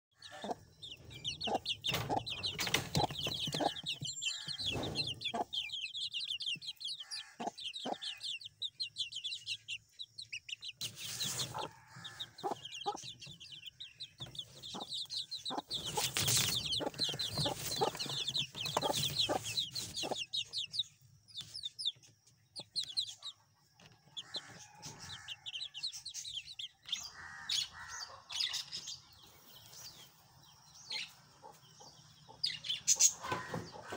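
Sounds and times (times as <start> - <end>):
young hens chirping: 0.1 - 33.9
hens clucking: 0.2 - 8.8, 10.3 - 20.8.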